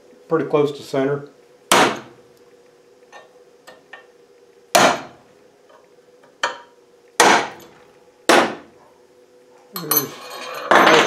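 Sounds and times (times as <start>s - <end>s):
hammer striking metal punch: 1.7s - 2.1s, 7.2s - 7.6s, 8.3s - 8.6s.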